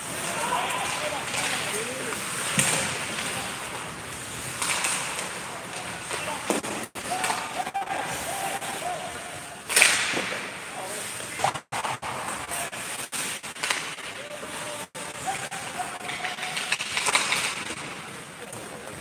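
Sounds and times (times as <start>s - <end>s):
clacks of sticks and puck: 0.0s - 7.7s, 9.7s - 10.5s, 11.3s - 19.0s
faint distant shouts: 0.1s - 2.2s, 6.1s - 9.6s
hockey stick cracking puck: 0.8s - 3.5s, 4.4s - 7.6s, 9.7s - 10.4s, 13.1s - 14.2s, 15.8s - 17.9s.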